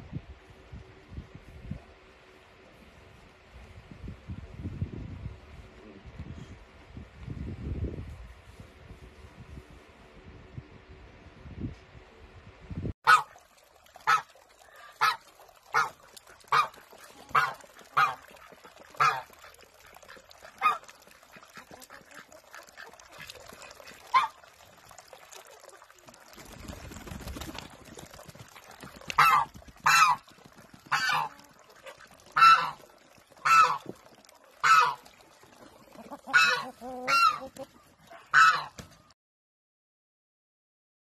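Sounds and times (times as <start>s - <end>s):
goose honking: 18.9s - 19.4s, 29.2s - 30.2s, 30.9s - 33.9s, 34.6s - 35.1s, 36.0s - 37.7s, 38.3s - 38.8s.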